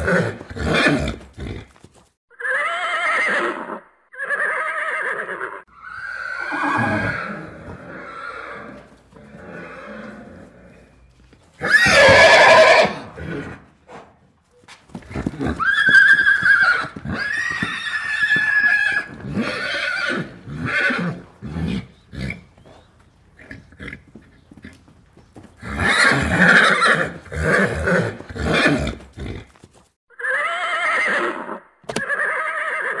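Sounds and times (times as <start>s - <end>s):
horses whinnying: 0.0s - 13.7s, 15.0s - 22.8s, 25.6s - 33.0s.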